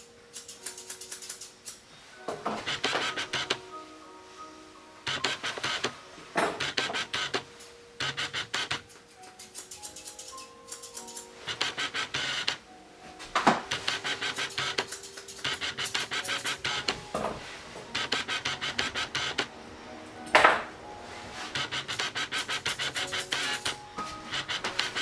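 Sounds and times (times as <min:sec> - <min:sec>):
quiet background music: 0:00.0 - 0:25.0
grooming shears clicking: 0:00.3 - 0:01.8, 0:02.5 - 0:03.6, 0:05.1 - 0:12.6, 0:13.7 - 0:17.3, 0:17.9 - 0:19.5, 0:21.6 - 0:25.0
shears scraping: 0:00.3 - 0:03.7, 0:05.1 - 0:12.6, 0:13.4 - 0:19.5, 0:21.0 - 0:25.0.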